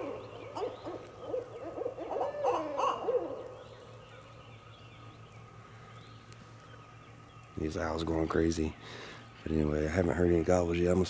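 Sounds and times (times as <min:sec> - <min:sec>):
owls hooting: 0:00.0 - 0:04.3.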